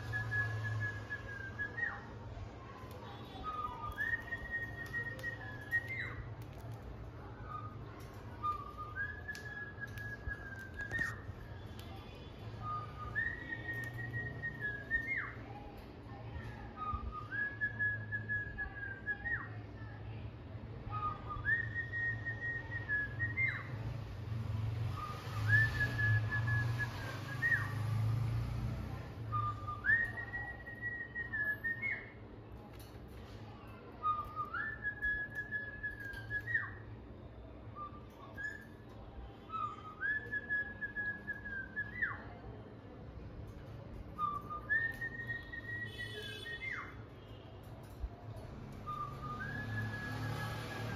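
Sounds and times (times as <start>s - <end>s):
whistled phrase: 0.0s - 2.2s, 12.6s - 15.4s, 44.1s - 47.0s, 48.8s - 50.9s.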